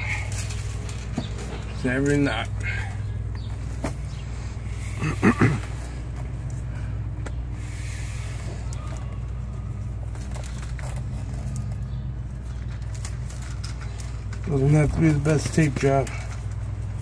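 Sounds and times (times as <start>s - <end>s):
hands rustling rope and tape: 0.0s - 17.0s
low motor hum: 0.0s - 17.0s.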